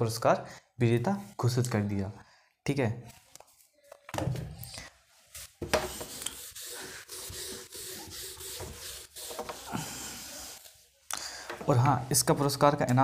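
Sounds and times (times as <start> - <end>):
scratchy rubbing: 5.4 - 10.6.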